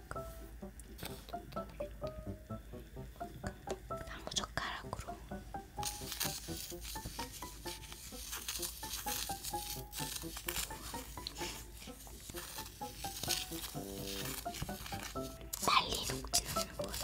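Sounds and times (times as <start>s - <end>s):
chopstick scraping sugar in ladle: 5.8s - 17.0s.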